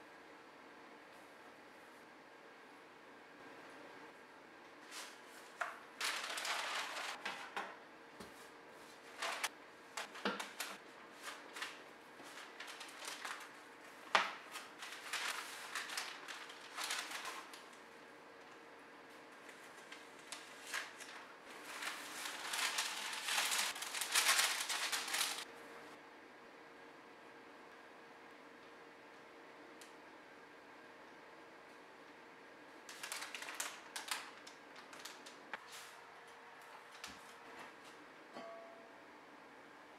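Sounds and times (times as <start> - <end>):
baking paper crinkling: 4.8 - 17.9, 19.1 - 25.5, 32.8 - 35.9.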